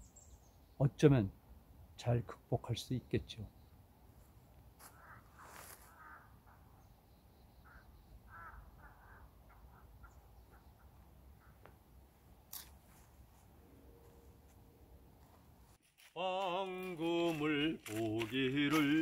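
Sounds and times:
faint distant calls: 0:04.8 - 0:11.9.

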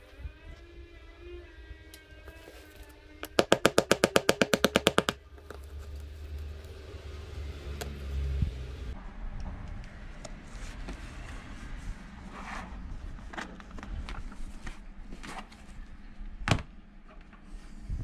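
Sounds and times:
low rumble: 0:06.7 - 0:14.6.

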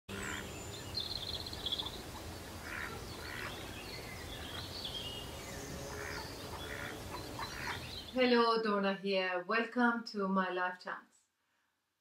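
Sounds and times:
harsh bird calls: 0:00.1 - 0:08.2
low background noise: 0:00.1 - 0:11.4.

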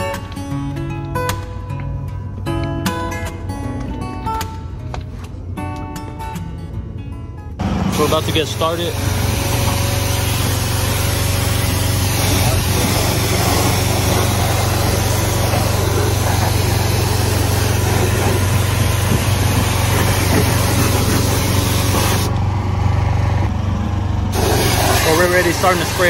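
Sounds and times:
pressure washer motor hum: 0:07.6 - 0:26.0
pressure washer water spray: 0:07.9 - 0:22.4, 0:24.3 - 0:26.0.

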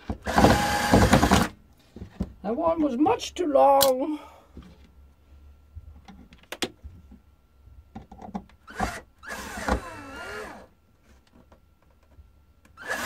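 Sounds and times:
drill motor whining: 0:00.2 - 0:01.5, 0:08.7 - 0:10.7, 0:12.8 - 0:13.0.

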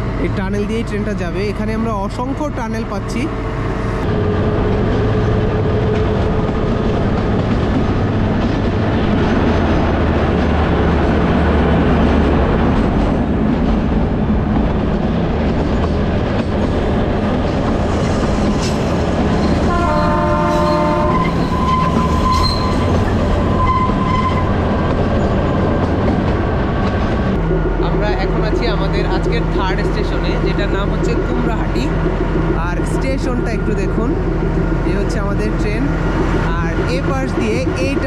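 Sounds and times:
train rumbling on rails: 0:00.0 - 0:38.0
wheels squealing: 0:18.4 - 0:25.6
train horn: 0:19.6 - 0:22.9.

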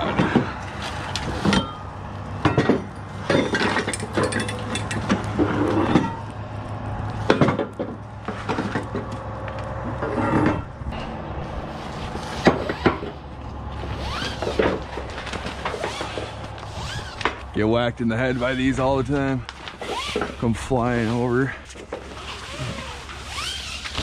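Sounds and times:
metal clanks from strap winches: 0:00.0 - 0:06.3, 0:19.6 - 0:20.4.

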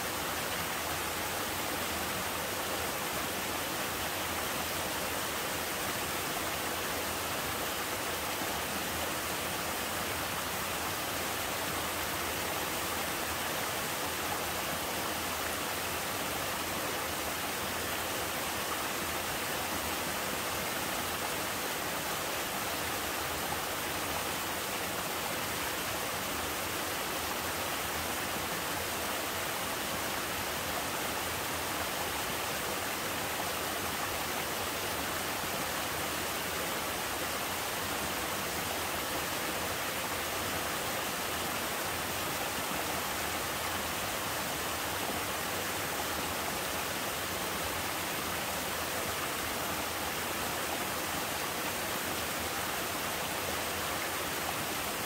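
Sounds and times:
waterfall rushing over rocks: 0:00.0 - 0:55.0.

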